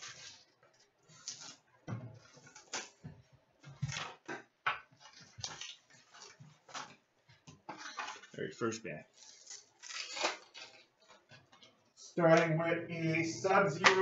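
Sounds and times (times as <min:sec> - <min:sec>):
plastic shrink-wrap crinkling: 0:00.0 - 0:03.0, 0:09.1 - 0:11.3.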